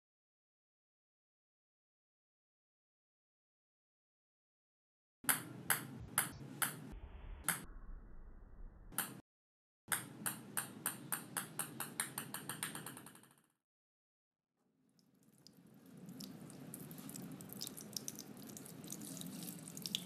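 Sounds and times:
ping-pong ball bouncing on brick: 5.3 - 6.8, 9.9 - 13.4.

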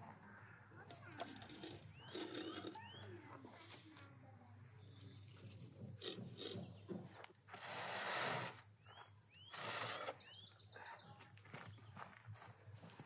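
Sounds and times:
small birds chirping: 0.0 - 13.0
metal tray scraping on brick: 1.1 - 3.0, 5.2 - 8.6.

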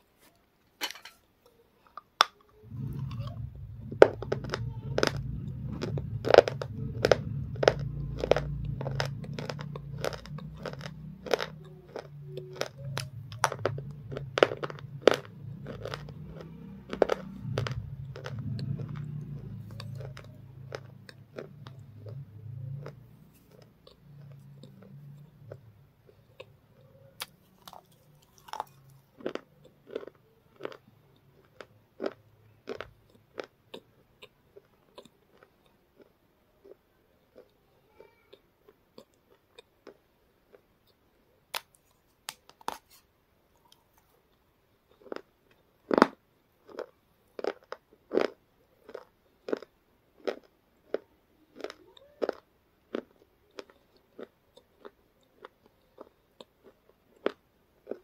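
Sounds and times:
crunchy chewing: 0.9 - 58.0.

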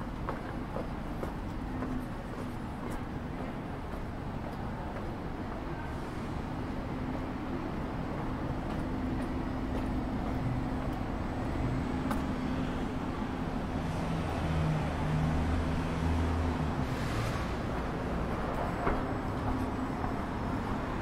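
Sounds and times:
vehicle engines running: 0.0 - 21.0.

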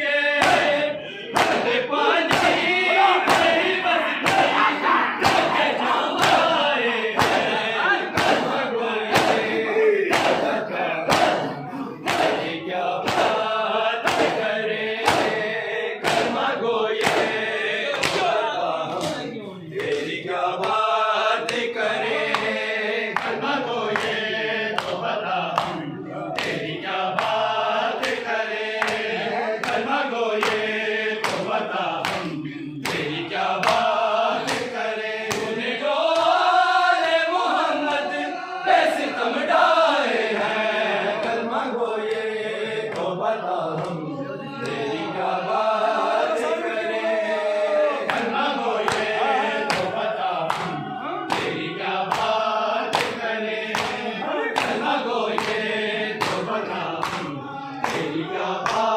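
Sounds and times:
men chanting in unison: 0.0 - 58.9
hands beating on chests: 1.4 - 6.5, 7.2 - 15.4, 16.0 - 19.2.

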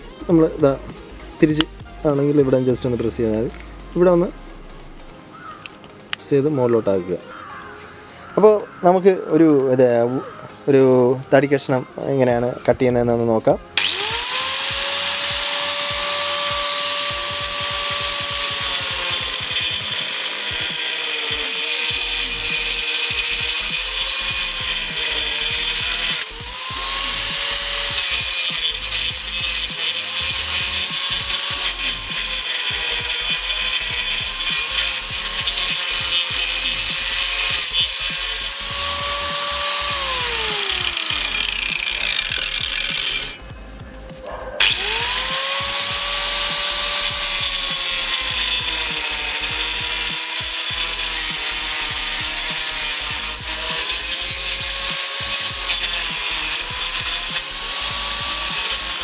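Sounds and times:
angle grinder cutting wood: 0.0 - 59.0.

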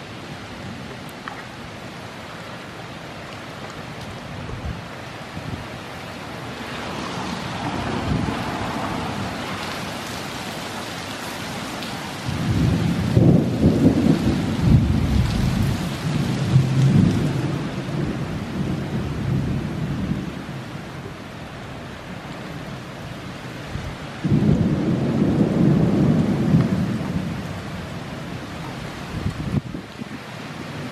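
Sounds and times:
heavy rain hissing: 3.8 - 30.9
thunder rumbling: 6.8 - 9.8, 11.8 - 21.1, 23.8 - 30.9.

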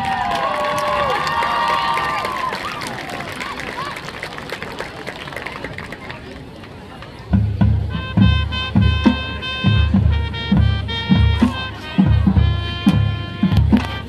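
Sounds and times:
marching band playing: 7.3 - 14.0.

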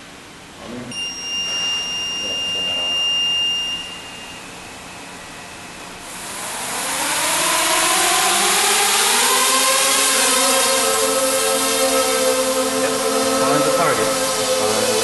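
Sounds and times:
high-pitched beep: 0.9 - 5.8
drone motors whirring: 6.1 - 15.0.

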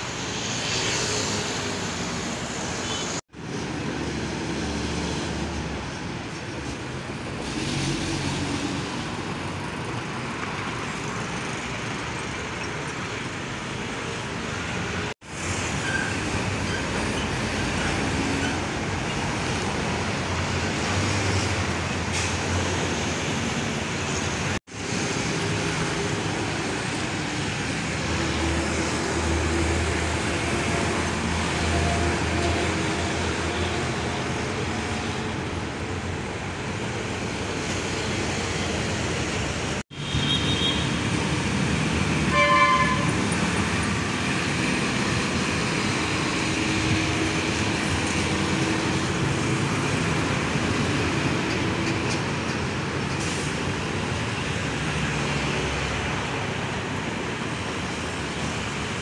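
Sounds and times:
road traffic noise: 0.0 - 59.0
vehicle horn toot: 40.0 - 41.0, 42.3 - 43.2.

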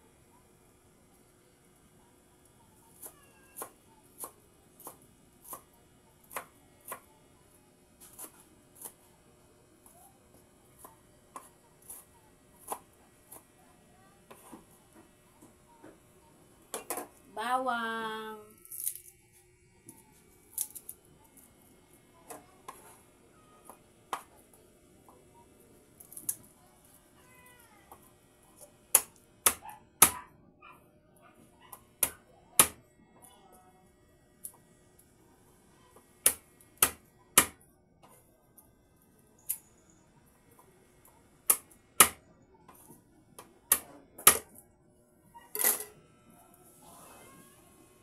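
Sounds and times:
garlic skin crackling as peeled: 18.6 - 19.1
knife chopping on cutting board: 36.2 - 37.6.

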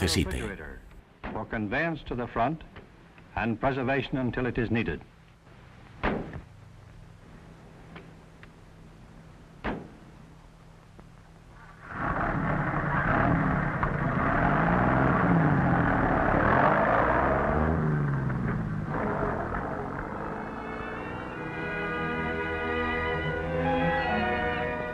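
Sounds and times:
truck engine revving: 13.0 - 20.5.

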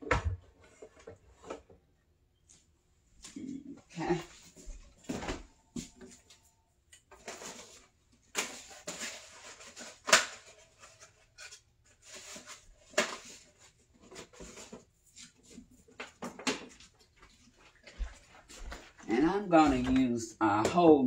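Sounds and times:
kitchen items knocking and clattering: 7.1 - 11.4, 12.0 - 17.0, 19.6 - 21.0.

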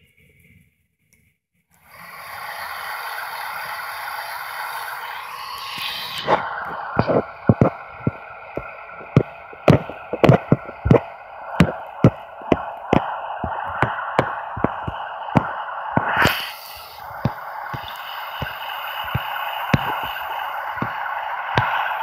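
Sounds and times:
model train motor drone: 1.7 - 22.0
wheels clicking on track: 1.8 - 22.0.

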